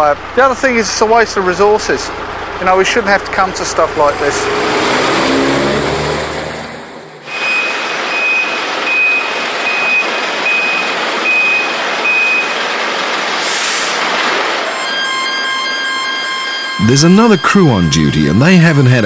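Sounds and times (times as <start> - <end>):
truck engine: 0.0 - 19.0
reversing alarm beeping: 7.3 - 12.6, 14.6 - 19.0
air brakes hissing: 13.4 - 14.1.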